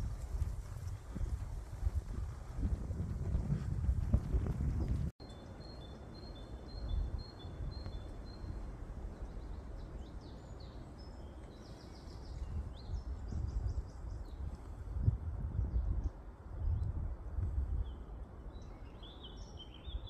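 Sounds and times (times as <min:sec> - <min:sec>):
steady low rumble: 0:00.0 - 0:05.1
songbirds singing: 0:04.8 - 0:14.9, 0:17.7 - 0:20.0
high bird chirps and trills: 0:17.8 - 0:20.0.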